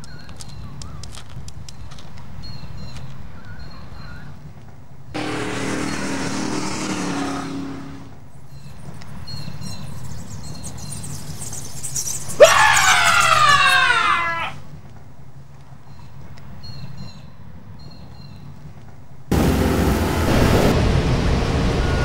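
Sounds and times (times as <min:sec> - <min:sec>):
vehicle passing: 0:05.2 - 0:08.3, 0:19.3 - 0:22.0
cat yowling: 0:12.4 - 0:14.6.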